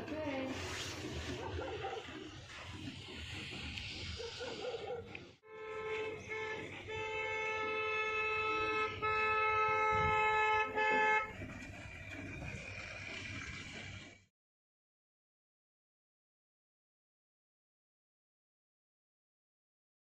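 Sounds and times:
vehicle horn honking: 5.4s - 11.4s.

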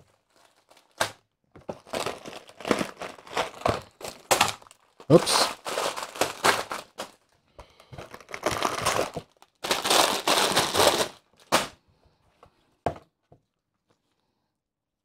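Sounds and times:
plastic bags crinkling: 0.0s - 11.8s.

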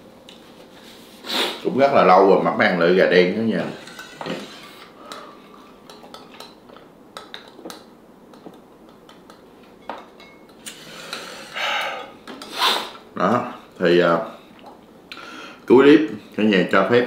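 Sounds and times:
breathy air rushes: 10.8s - 13.0s.

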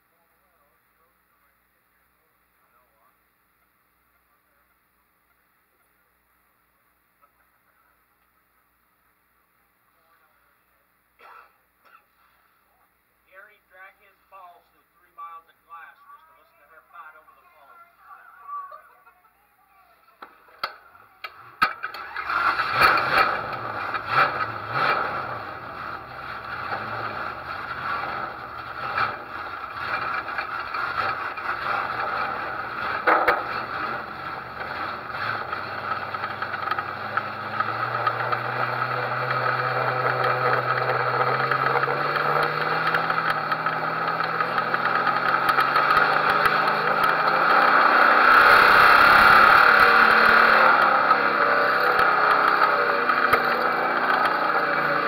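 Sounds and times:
clicks: 20.2s - 22.0s
race car engine starting and running: 20.2s - 55.0s.

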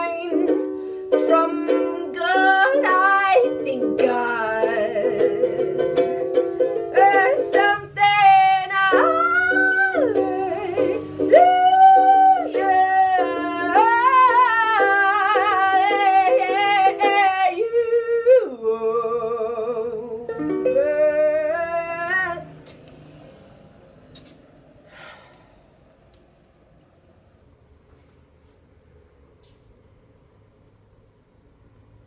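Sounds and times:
person singing: 0.0s - 22.8s
ukulele strumming: 0.0s - 23.1s.

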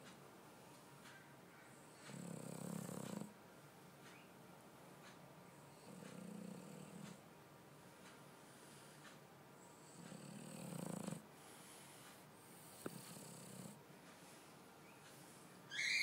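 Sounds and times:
dog snoring faintly: 1.8s - 3.4s, 5.5s - 7.2s, 9.6s - 13.8s.

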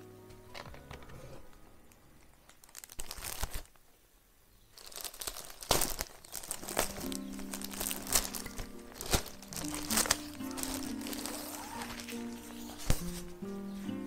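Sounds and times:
plastic tearing snaps: 1.9s - 3.9s, 4.8s - 13.4s
plastic bag crinkling: 2.1s - 4.0s, 4.7s - 13.4s
tape strip peeling: 5.1s - 13.4s.

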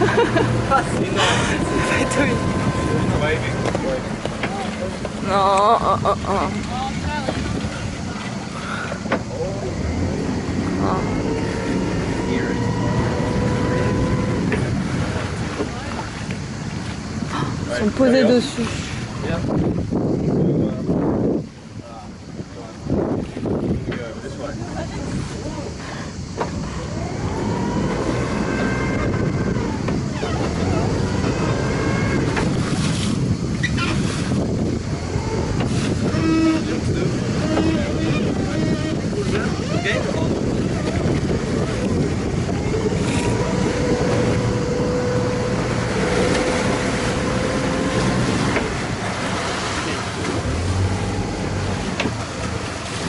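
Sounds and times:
thin steady whine: 0.0s - 18.6s
boat engine rumbling: 0.0s - 53.0s
water splashing along hull: 0.0s - 53.0s.

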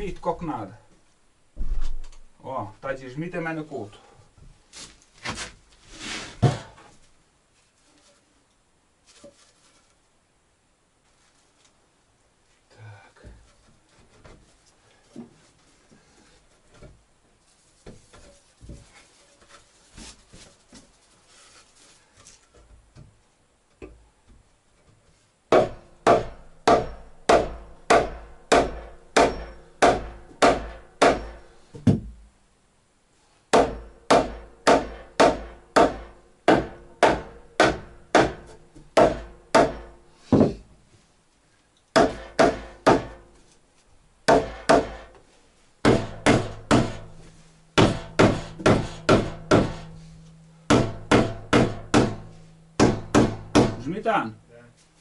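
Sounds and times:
hammer blows on wood: 25.5s - 32.0s, 45.8s - 50.1s.

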